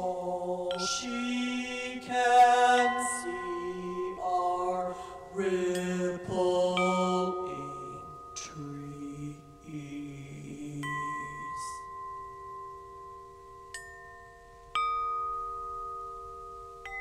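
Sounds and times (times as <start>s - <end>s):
low chanting voice: 0.0s - 11.9s
struck bells ringing: 0.7s - 17.0s.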